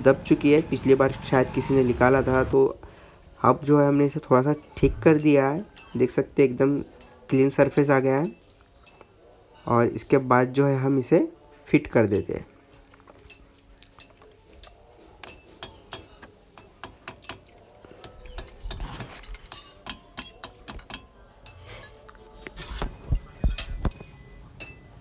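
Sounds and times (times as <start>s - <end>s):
hammer tapping metal cap: 14.0s - 21.1s.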